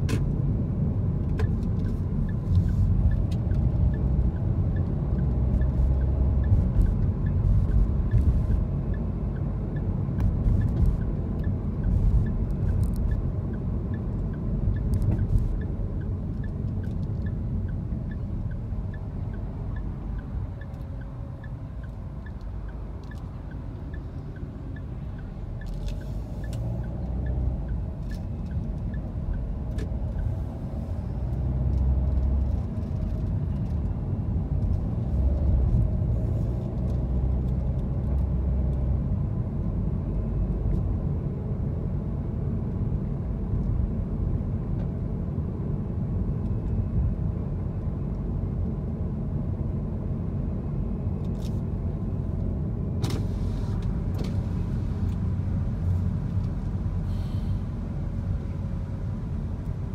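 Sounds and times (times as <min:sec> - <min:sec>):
car engine and tyre rumble: 0:00.0 - 0:59.9
short hissing sounds: 0:57.0 - 0:57.6.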